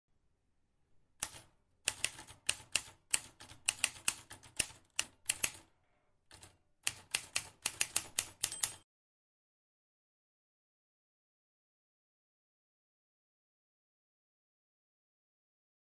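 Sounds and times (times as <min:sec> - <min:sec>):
typewriter keys clattering: 0:06.3 - 0:08.8.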